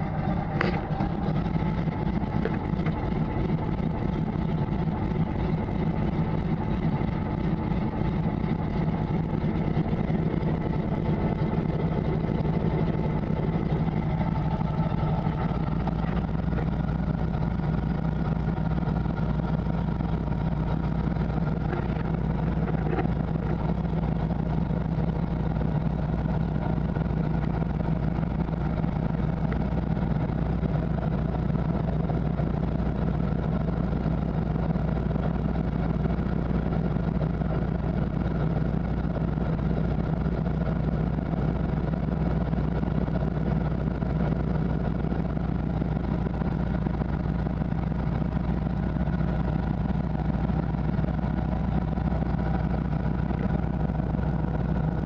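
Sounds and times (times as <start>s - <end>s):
plane engine and propeller: 0.0s - 55.0s.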